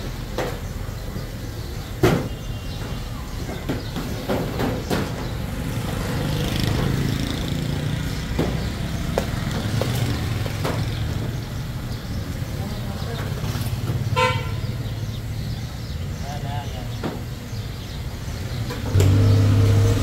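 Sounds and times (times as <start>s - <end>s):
traffic engine rumble: 0.0s - 20.0s
sharp knocks: 8.3s - 11.2s.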